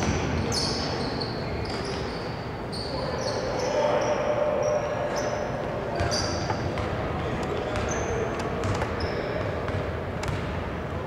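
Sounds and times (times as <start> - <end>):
sneakers squeaking on court: 0.0 - 10.6
basketball bouncing: 8.6 - 10.6.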